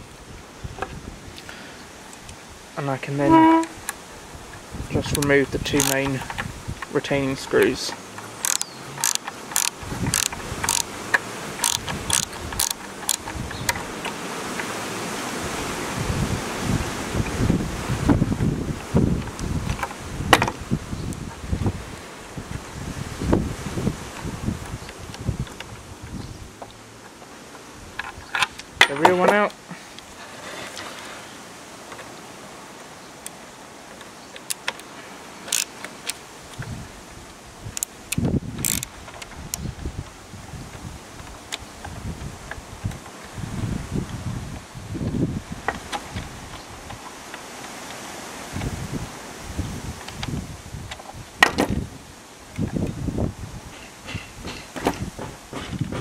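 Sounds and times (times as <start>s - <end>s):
steady hiss: 0.0s - 51.2s
ratcheting screwdriver clicking: 5.1s - 6.2s, 8.4s - 10.9s, 11.6s - 13.4s, 35.5s - 36.2s, 37.8s - 38.9s.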